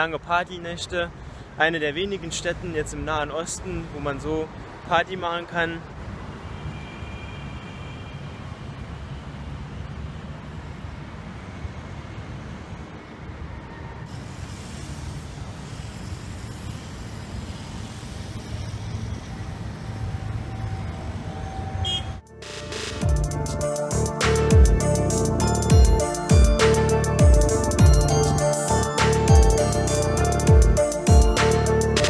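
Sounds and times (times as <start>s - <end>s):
traffic noise: 0.0s - 32.0s
bright hiss: 14.1s - 20.0s.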